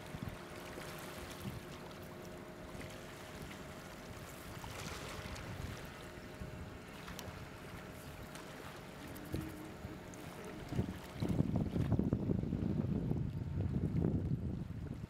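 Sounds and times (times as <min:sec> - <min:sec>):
faint engine hum: 0:00.0 - 0:15.0
wind on microphone: 0:09.0 - 0:15.0.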